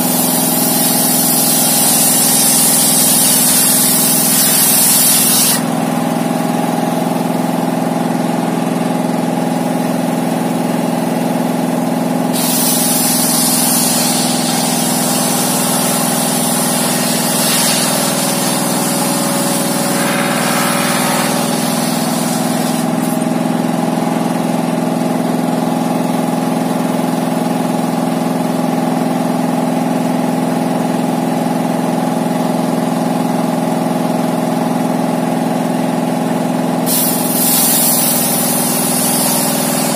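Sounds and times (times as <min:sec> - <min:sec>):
saw blade cutting wood: 0:00.0 - 0:05.7, 0:12.4 - 0:23.2, 0:36.9 - 0:39.9
diesel engine running: 0:00.0 - 0:39.9.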